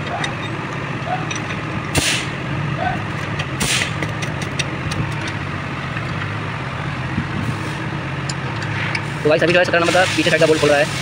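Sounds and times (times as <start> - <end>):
low engine-like hum: 0.0 - 11.0
wrench clicks: 3.0 - 6.3.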